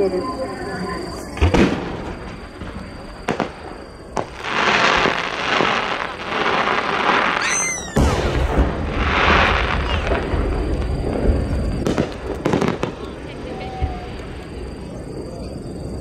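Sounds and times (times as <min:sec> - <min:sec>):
firework tail crackling and sizzling: 0:01.0 - 0:15.2
firework sharp pops: 0:01.4 - 0:13.1
high whistle: 0:07.3 - 0:08.6
firework shell deep boom: 0:07.9 - 0:12.8.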